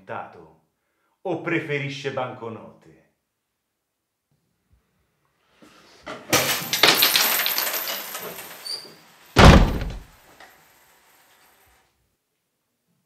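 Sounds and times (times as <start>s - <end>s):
door handle clattering: 9.4s - 10.1s
door slamming shut: 9.4s - 10.1s.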